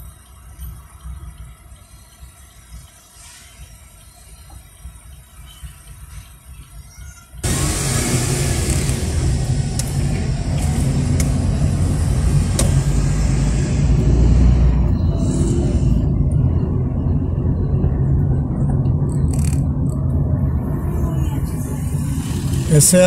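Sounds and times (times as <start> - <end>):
engine and road rumble: 0.0 - 23.0
high hiss: 7.4 - 14.6.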